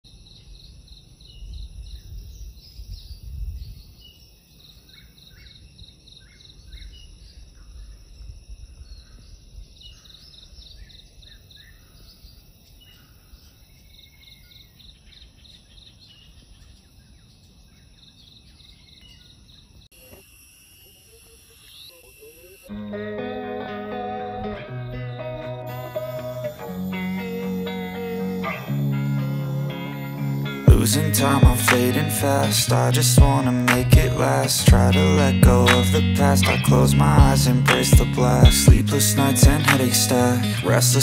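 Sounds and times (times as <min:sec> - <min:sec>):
insects droning: 0:00.1 - 0:41.0
wind rumble on microphone: 0:01.3 - 0:04.1.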